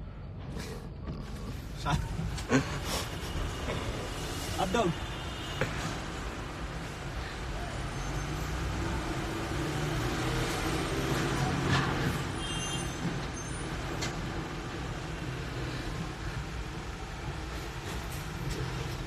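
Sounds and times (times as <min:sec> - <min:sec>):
road rumble inside car: 0:00.0 - 0:07.9
large vehicle engine passing: 0:08.4 - 0:12.3.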